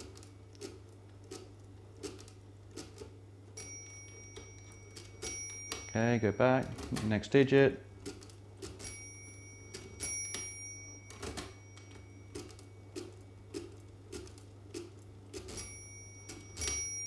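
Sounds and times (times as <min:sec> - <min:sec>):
calculator gears and crank clunking: 0:00.0 - 0:17.0
calculator bell ringing: 0:03.6 - 0:08.0, 0:08.6 - 0:13.2, 0:15.4 - 0:17.0.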